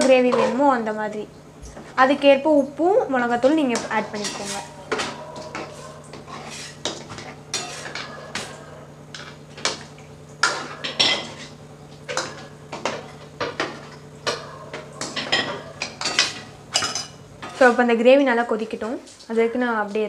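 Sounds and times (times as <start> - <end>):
metal spoon scraping metal pan: 3.4 - 8.6.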